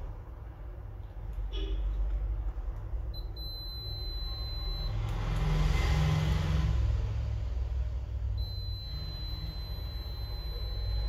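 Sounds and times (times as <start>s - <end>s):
multimeter beeping: 3.2s - 5.3s, 8.4s - 11.0s.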